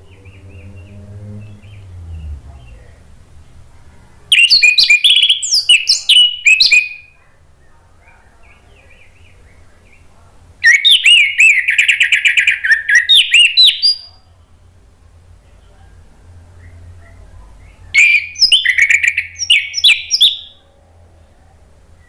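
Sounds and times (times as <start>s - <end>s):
thrush singing: 0.0s - 7.0s.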